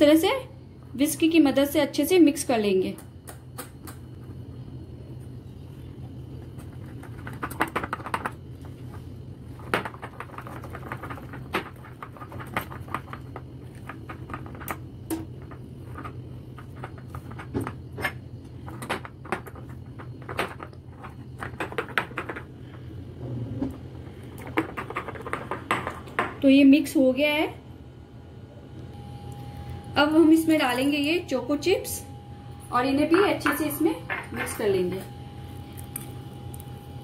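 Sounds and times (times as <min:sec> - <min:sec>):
low hum: 0:25.8 - 0:37.0.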